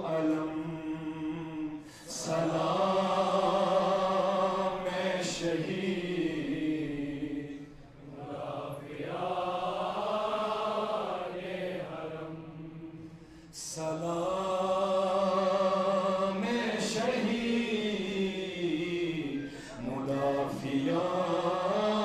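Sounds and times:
man chanting: 0:00.0 - 0:02.9, 0:13.6 - 0:22.0.

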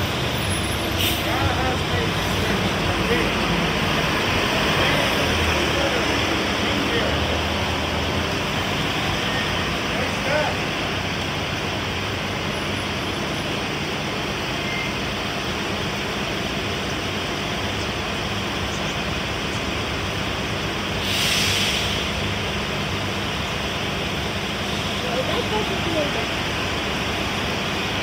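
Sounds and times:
bus engine hum: 0:00.0 - 0:28.0
rain and wet-road noise: 0:00.0 - 0:28.0
loud hiss: 0:20.5 - 0:23.2.

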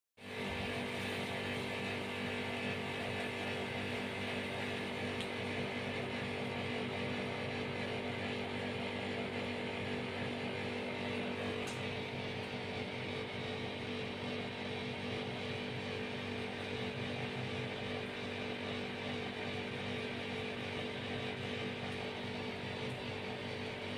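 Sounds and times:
steady mechanical hum: 0:00.2 - 0:23.9.

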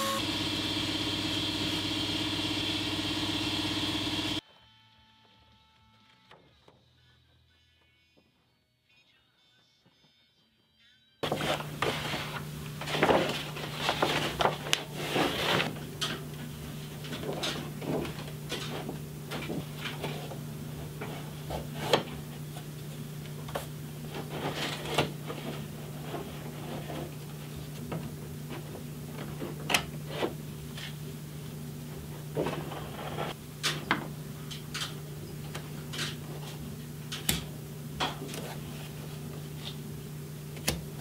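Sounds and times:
stiff paper rustling and crinkling: 0:11.2 - 0:20.4.

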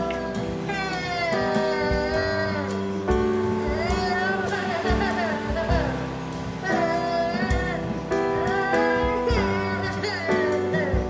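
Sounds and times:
song with sung melody: 0:00.0 - 0:11.0.

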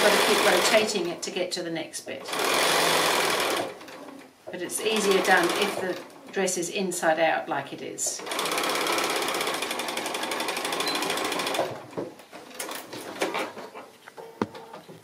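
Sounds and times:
sewing machine stitching: 0:00.0 - 0:00.9, 0:02.3 - 0:04.3, 0:04.9 - 0:06.1, 0:08.2 - 0:11.8.

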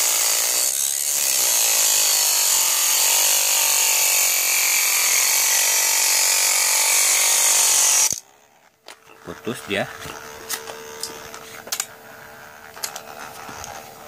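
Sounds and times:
small motor whine: 0:00.0 - 0:14.0
grinding hiss: 0:09.0 - 0:14.0.

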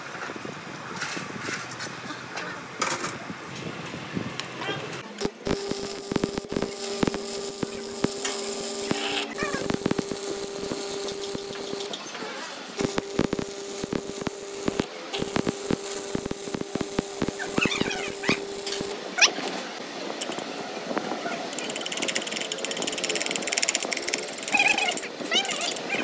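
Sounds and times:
welding arc crackling: 0:05.0 - 0:12.0, 0:12.7 - 0:19.0, 0:21.5 - 0:26.0
electric buzz: 0:05.1 - 0:12.0, 0:12.7 - 0:19.0.

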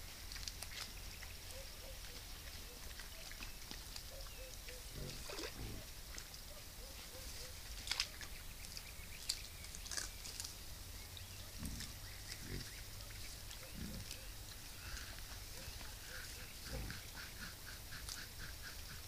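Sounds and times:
wild boar grunting: 0:04.1 - 0:06.1, 0:11.3 - 0:19.0
twigs snapping: 0:07.8 - 0:10.6.

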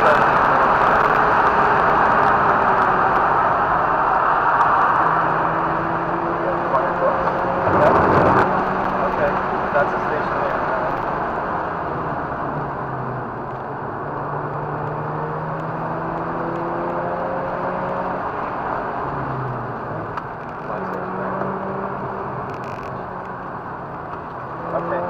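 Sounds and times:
wind and road noise: 0:00.0 - 0:25.0
rotary engine running hard: 0:06.4 - 0:10.6.

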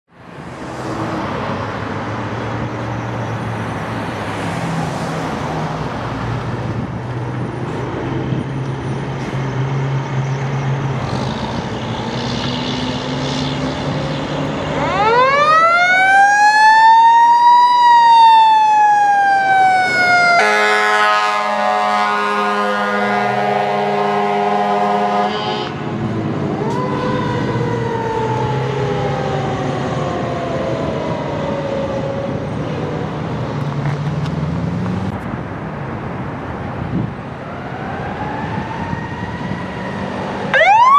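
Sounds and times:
fire engine rumble: 0:13.7 - 0:40.9
siren wailing: 0:14.6 - 0:25.8, 0:26.5 - 0:32.6, 0:37.4 - 0:40.9
horn blast: 0:20.4 - 0:25.8.

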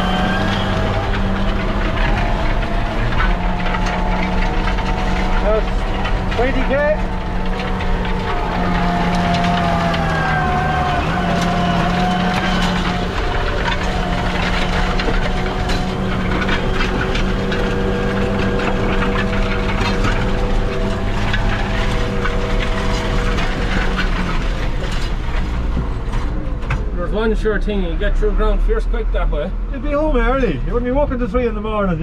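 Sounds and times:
wavering whine: 0:00.0 - 0:25.5
rattles and clicks: 0:00.0 - 0:27.8
tractor engine drone: 0:00.0 - 0:32.0.

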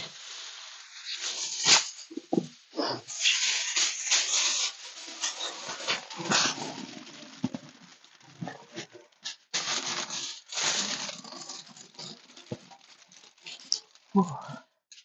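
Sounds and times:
aluminium foil crinkling: 0:00.0 - 0:15.0.

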